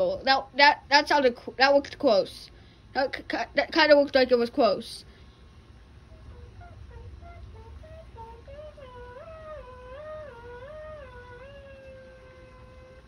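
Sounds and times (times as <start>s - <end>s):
person humming: 6.1s - 13.0s.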